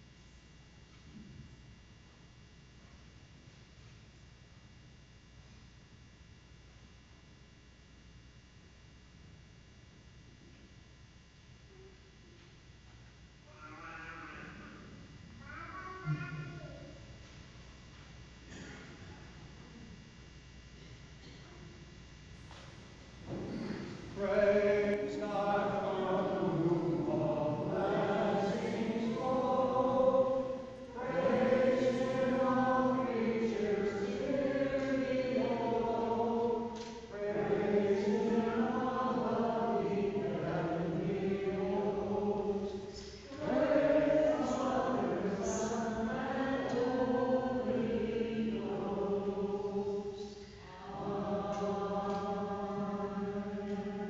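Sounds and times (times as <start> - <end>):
church choir singing a hymn: 23.2 - 54.0.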